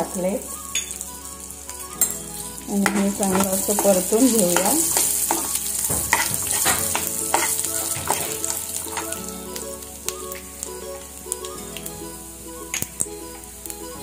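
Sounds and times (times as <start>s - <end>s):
food sizzling in hot oil: 0.0s - 14.0s
steel spoon scraping pan: 2.8s - 9.2s.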